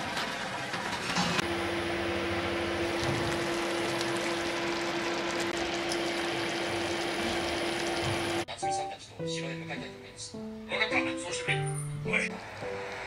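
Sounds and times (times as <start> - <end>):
sauce bubbling in pot: 1.4 - 8.5.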